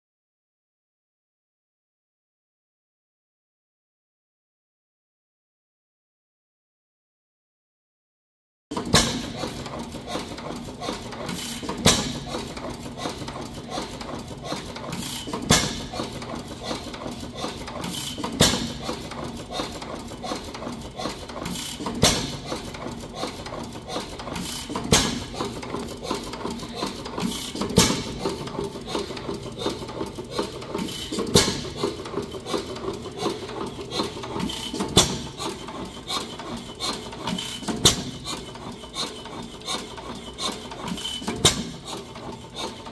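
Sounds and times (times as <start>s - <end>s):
engine firing stroke: 8.7s - 42.9s
mechanical clicking of running gear: 8.7s - 42.9s.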